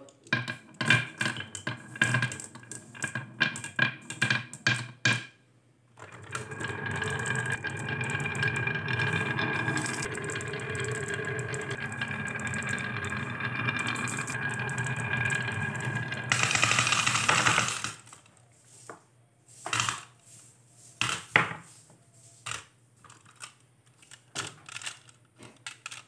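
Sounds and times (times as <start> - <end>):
glass marbles clicking on wood: 0.0 - 5.3, 6.1 - 18.2
marbles rolling down wooden track: 0.0 - 5.3, 6.0 - 18.3, 19.7 - 20.1.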